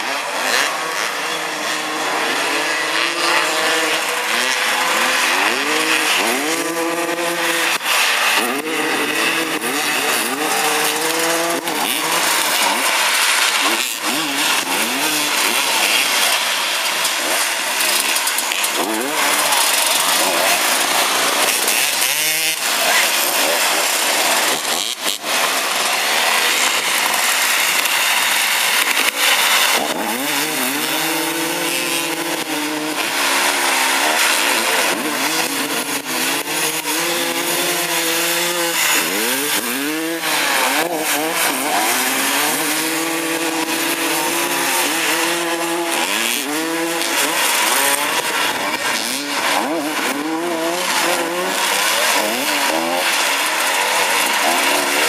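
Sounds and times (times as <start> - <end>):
motorcycle engines revving: 0.0 - 55.0.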